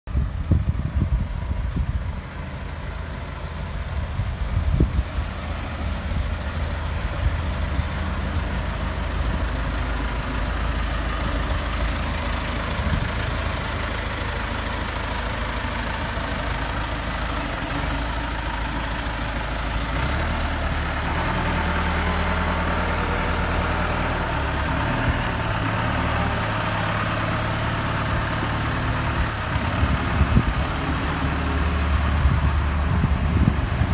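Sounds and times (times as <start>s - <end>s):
telehandler engine running: 0.1s - 33.9s.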